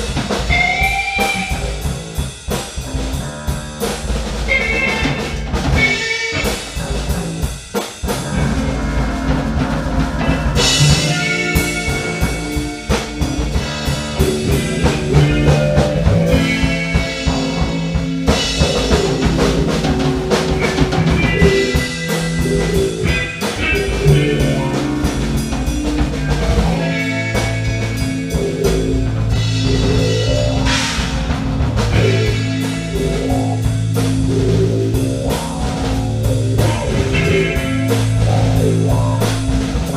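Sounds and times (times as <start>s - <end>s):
bass guitar: 0.0s - 39.9s
drum kit: 0.0s - 39.9s
live band jamming: 0.0s - 39.9s.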